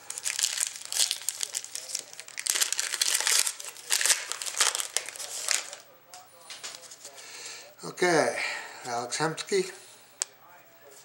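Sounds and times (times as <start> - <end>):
wrapper tearing and crinkling: 0.1 - 5.8.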